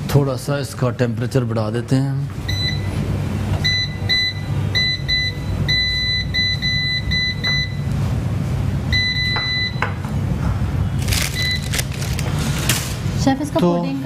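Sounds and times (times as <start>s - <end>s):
low steady hum: 0.0s - 14.0s
oven control panel beeping: 2.5s - 8.0s, 8.9s - 10.0s, 11.3s - 12.0s.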